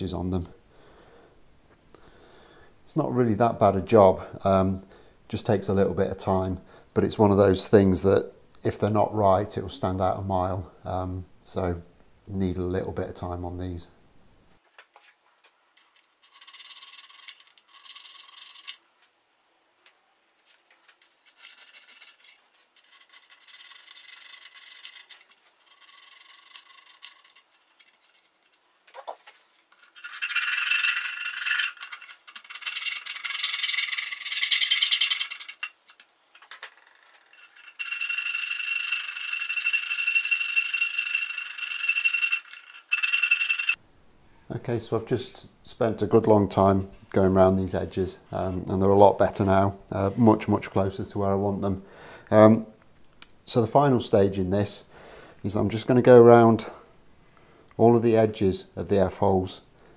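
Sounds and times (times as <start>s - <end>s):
thin steady squeal: 37.3s - 43.8s.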